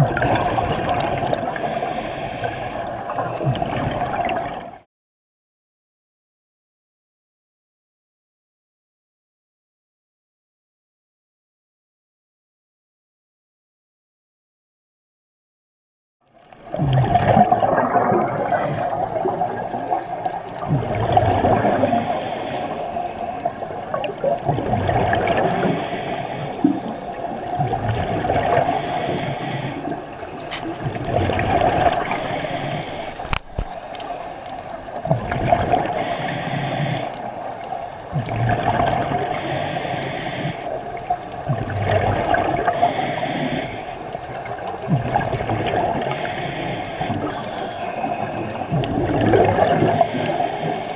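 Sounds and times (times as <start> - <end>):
regulator bubbling exhale: 0.0 - 4.6, 16.7 - 37.5, 38.1 - 50.9
steady underwater drone: 0.0 - 4.8, 16.4 - 50.9
regulator hiss on inhale: 0.5 - 3.3, 21.7 - 23.6, 25.5 - 27.2, 28.6 - 31.0, 32.0 - 35.0, 35.8 - 38.2, 39.2 - 41.2, 42.6 - 44.7, 46.0 - 48.7, 49.8 - 50.9.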